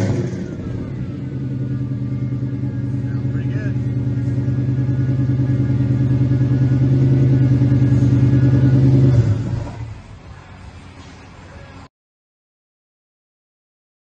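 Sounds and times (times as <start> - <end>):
car engine running: 0.0 - 11.0.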